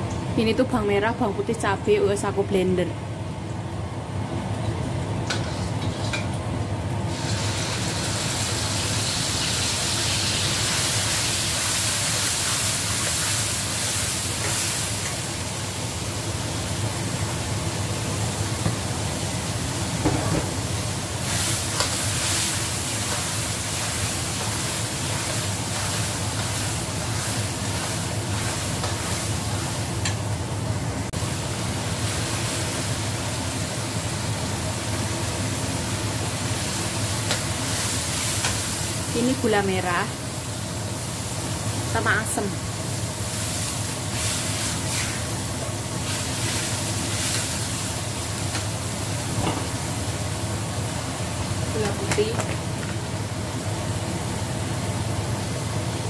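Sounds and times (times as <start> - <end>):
paste sizzling in hot oil: 7.1 - 16.0, 20.1 - 30.0, 36.2 - 39.9, 40.5 - 49.2.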